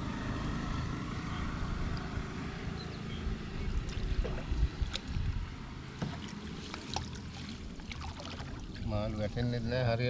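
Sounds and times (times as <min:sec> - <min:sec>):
wind rumble on microphone: 0:00.6 - 0:06.2
water sloshing and splashing: 0:03.6 - 0:09.4.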